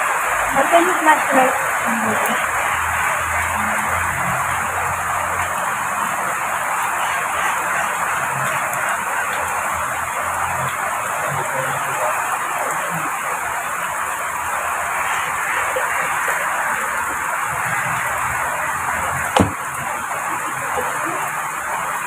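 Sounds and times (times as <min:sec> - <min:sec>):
heavy rain falling: 0:00.0 - 0:22.0
sharp knock: 0:19.4 - 0:19.6.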